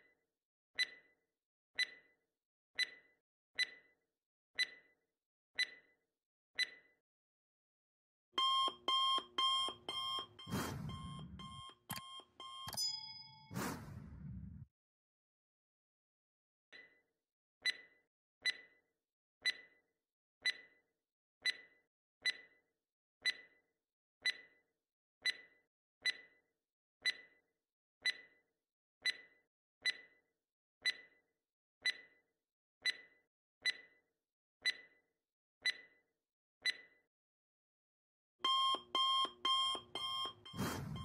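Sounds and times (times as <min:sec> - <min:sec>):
countdown timer ticking: 0:08.4 - 0:14.0, 0:38.4 - 0:41.0.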